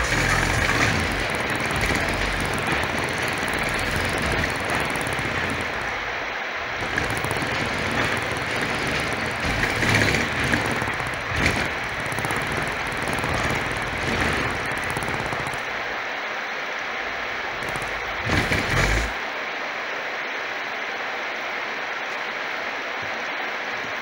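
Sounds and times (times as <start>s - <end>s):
distorted bass music rumble: 0.0s - 4.7s.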